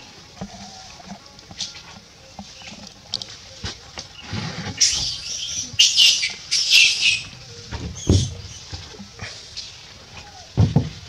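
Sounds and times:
macaques squealing: 0:04.7 - 0:10.6.

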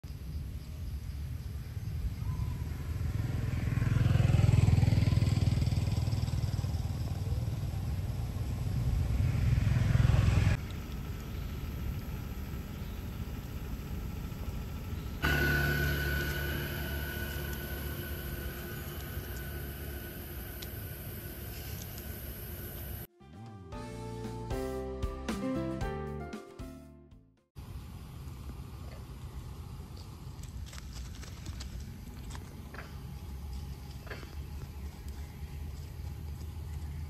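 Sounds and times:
passing vehicle engine: 0:02.4 - 0:23.1
steady hum with high tone: 0:10.6 - 0:23.1.

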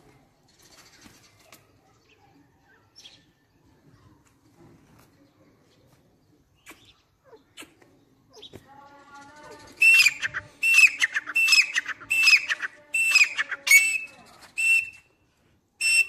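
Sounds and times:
francolin calling: 0:09.6 - 0:15.0, 0:15.8 - 0:16.0.

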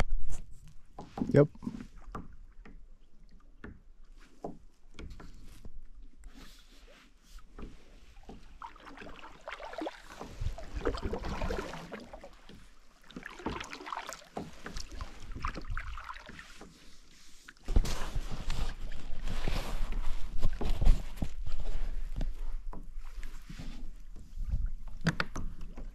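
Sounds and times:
paddle splashing and dripping: 0:06.4 - 0:17.7.

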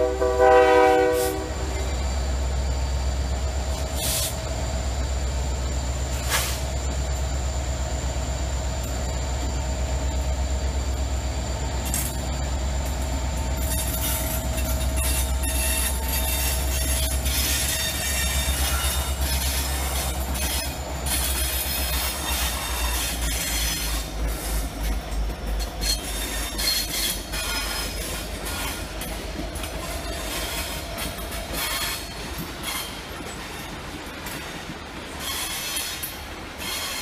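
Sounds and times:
diesel locomotive engine rumble: 0:00.0 - 0:37.0
high-pitched wheel squeal: 0:13.6 - 0:24.1.

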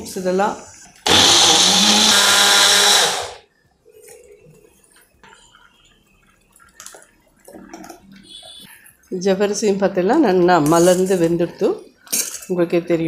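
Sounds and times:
mixer grinder blending: 0:01.0 - 0:03.4.

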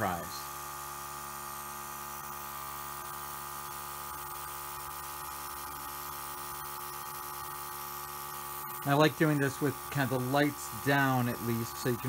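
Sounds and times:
airbrush compressor humming: 0:00.0 - 0:12.0
airbrush air hiss: 0:07.3 - 0:12.0.

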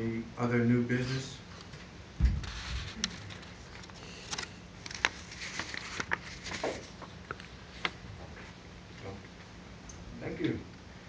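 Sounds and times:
faint steady hum: 0:00.0 - 0:11.0
low thump: 0:02.2 - 0:02.5.

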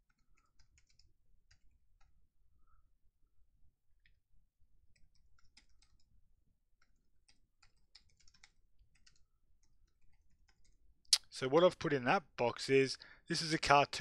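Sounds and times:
typing on computer keyboard: 0:00.1 - 0:02.2, 0:04.9 - 0:06.1, 0:06.8 - 0:10.8.

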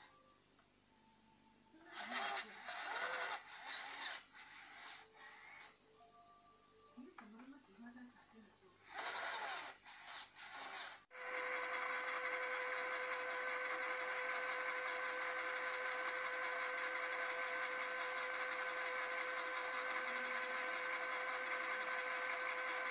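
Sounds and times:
hissing gear noise: 0:01.8 - 0:05.9, 0:08.8 - 0:22.9
electric motor whine: 0:01.8 - 0:06.0, 0:08.8 - 0:22.9.

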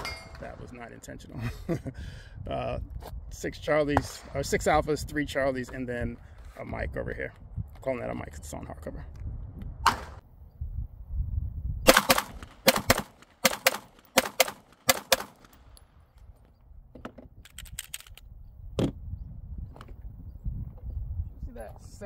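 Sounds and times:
pistol shots: 0:11.9 - 0:15.7.

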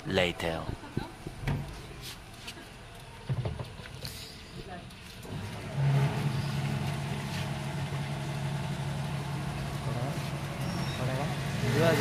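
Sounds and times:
diesel flowing into jerrycan: 0:05.2 - 0:12.0
fuel pump motor humming: 0:05.2 - 0:12.0.

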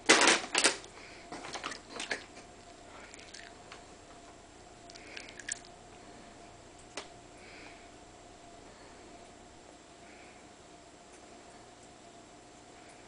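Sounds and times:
plastic bag crinkling: 0:00.0 - 0:03.8.

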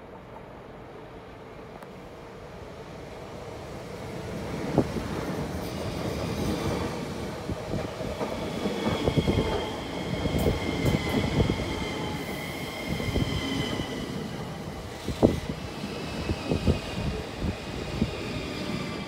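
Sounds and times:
train wheels rumbling on rail: 0:03.1 - 0:19.0.

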